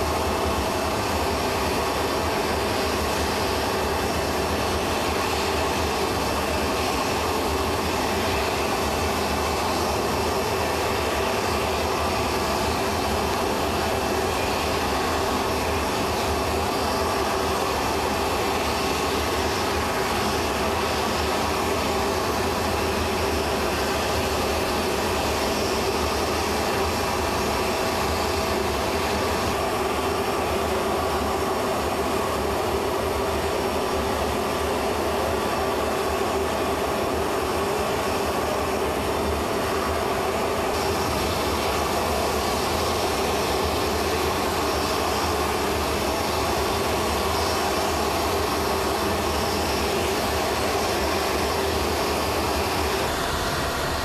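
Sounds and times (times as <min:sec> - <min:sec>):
aircraft turbine humming whine: 0:00.0 - 0:54.0.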